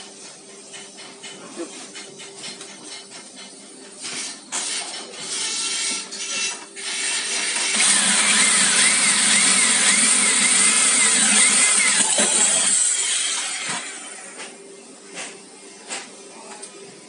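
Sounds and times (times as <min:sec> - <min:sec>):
electric drill boring through steel: 0:06.2 - 0:14.4.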